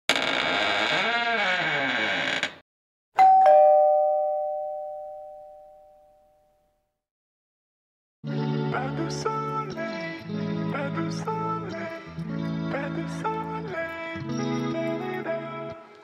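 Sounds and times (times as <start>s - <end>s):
two-note doorbell chime: 3.2s - 6.6s.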